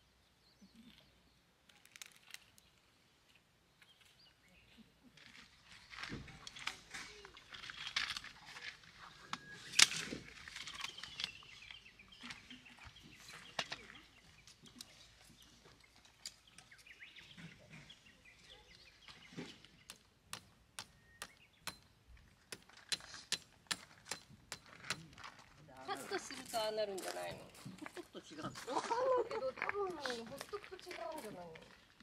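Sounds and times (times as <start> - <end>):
camp chair frame clack: 6.1 - 11.7.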